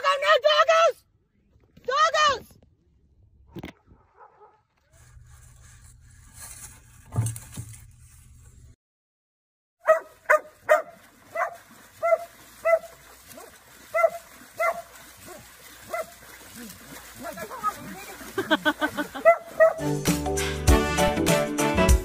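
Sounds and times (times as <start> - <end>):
dog yipping: 9.8 - 16.1, 19.2 - 19.9.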